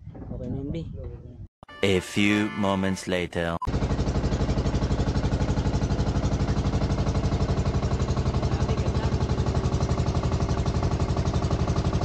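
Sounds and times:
boat engine chugging: 3.7 - 12.0.

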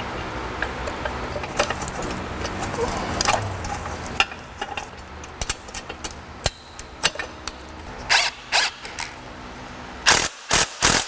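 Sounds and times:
ratchet wrench clicking: 8.1 - 9.2.

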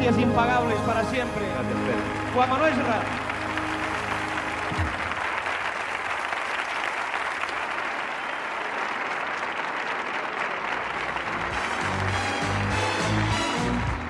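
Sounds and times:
band music: 0.0 - 5.4, 11.0 - 14.0
studio audience applauding: 0.0 - 14.0.

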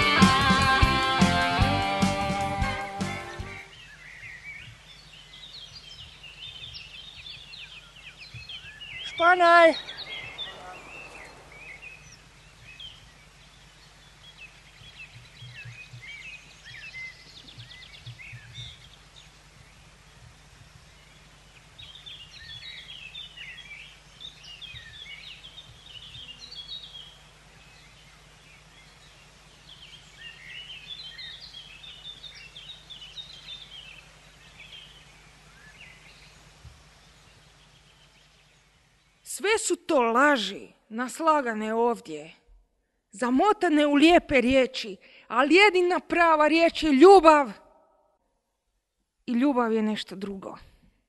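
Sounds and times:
faint steady hum: 2.4 - 50.0
small birds chirping and twittering: 3.0 - 40.6.

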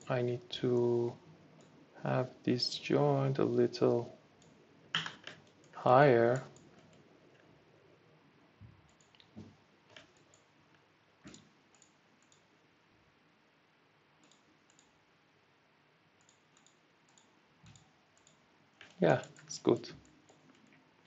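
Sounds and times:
computer mouse clicks: 1.6 - 1.8, 4.4 - 7.5, 8.9 - 10.5, 11.2 - 12.5, 14.2 - 15.0, 16.2 - 20.8.

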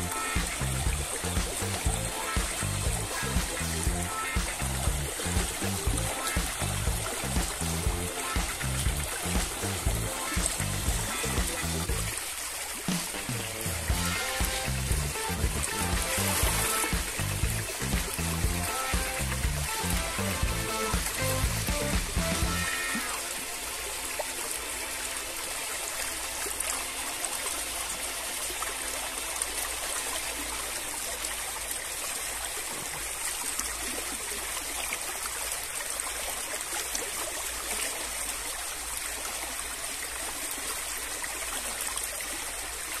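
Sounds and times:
stream water flowing and splashing: 0.0 - 43.0.

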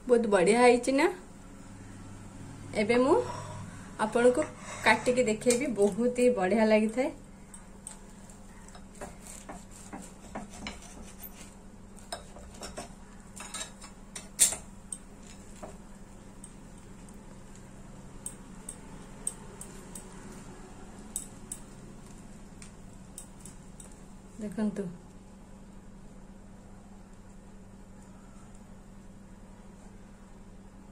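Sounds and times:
low steady hum: 0.0 - 30.9
knife clicking and scraping on plate: 8.7 - 11.5.

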